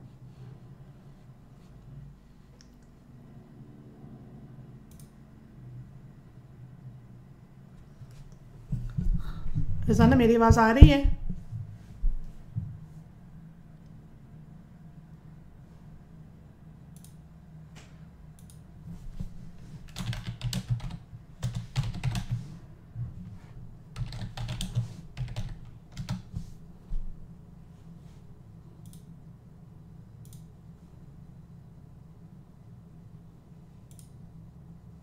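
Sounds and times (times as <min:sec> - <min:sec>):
low electrical hum: 0:00.0 - 0:35.0
typing on a keyboard: 0:19.9 - 0:22.4, 0:24.0 - 0:26.4.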